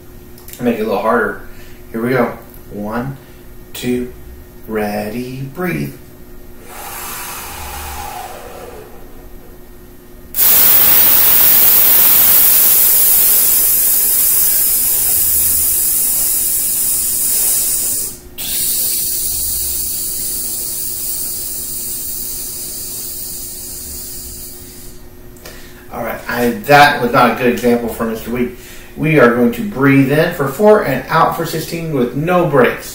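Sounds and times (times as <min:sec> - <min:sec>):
man breathing in: 0:01.5 - 0:01.9, 0:06.6 - 0:09.7, 0:23.6 - 0:25.9, 0:28.6 - 0:29.0
hissing breath through teeth: 0:06.6 - 0:09.6, 0:10.4 - 0:25.7.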